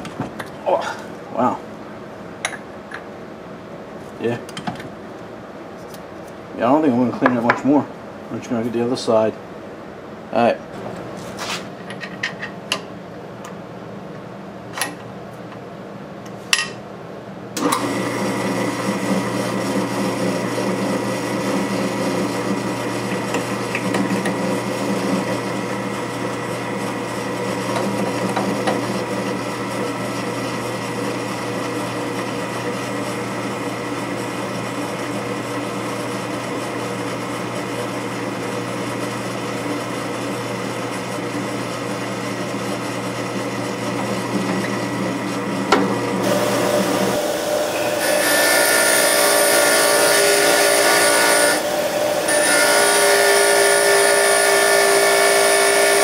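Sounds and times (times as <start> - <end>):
drill press cutting metal tube: 17.6 - 56.0.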